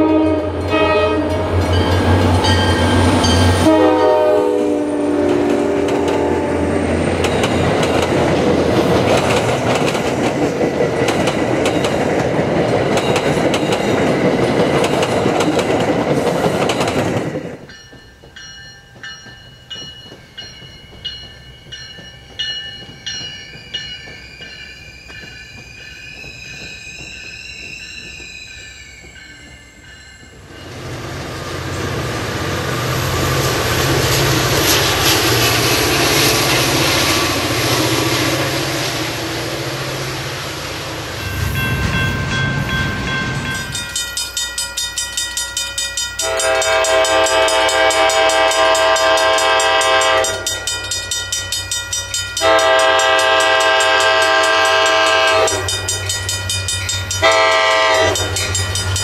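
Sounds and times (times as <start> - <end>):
train horn blasts: 0.0 - 1.7, 3.3 - 6.8, 46.2 - 50.5, 52.4 - 55.8, 57.2 - 58.4
railroad crossing bell ringing: 0.0 - 8.5, 11.5 - 15.8, 16.6 - 31.4, 40.9 - 59.0
train rumbling past: 0.0 - 59.0.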